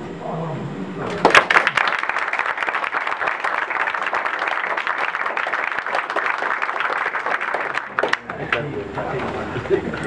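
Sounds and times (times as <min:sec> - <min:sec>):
audience applauding: 0:01.2 - 0:08.8.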